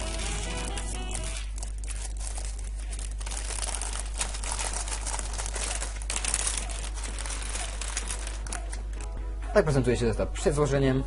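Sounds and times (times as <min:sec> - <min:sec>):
background music: 0:00.0 - 0:01.5, 0:07.4 - 0:11.0
plastic bag crinkling: 0:00.0 - 0:09.1.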